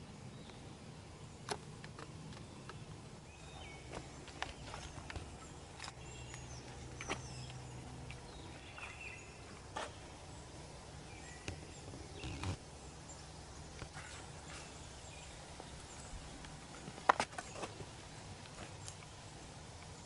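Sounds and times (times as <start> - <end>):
bird chirps: 2.3 - 17.8.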